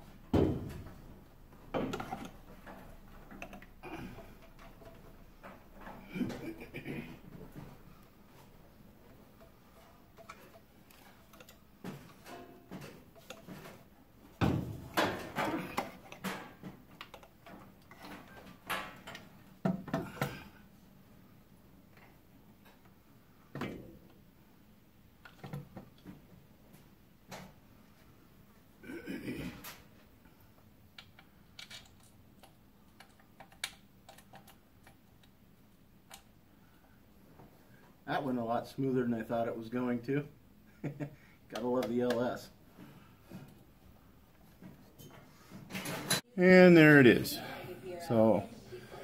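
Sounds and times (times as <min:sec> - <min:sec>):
metal parts knocking and clunking: 0:09.3 - 0:20.4.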